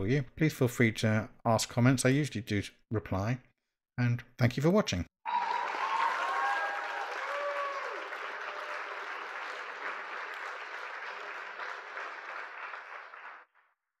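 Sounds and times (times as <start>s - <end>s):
audience cheer: 5.3s - 13.4s
audience applause: 5.3s - 13.5s.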